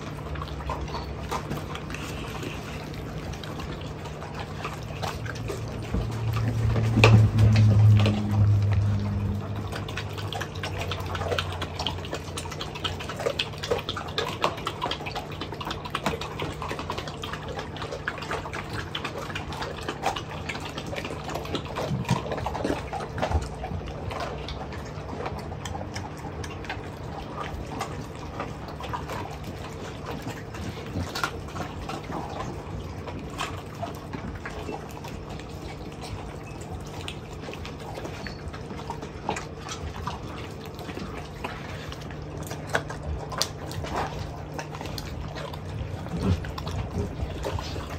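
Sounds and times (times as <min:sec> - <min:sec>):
dogs chewing and crunching bones: 0:00.0 - 0:47.9
steady low hum: 0:00.0 - 0:47.9.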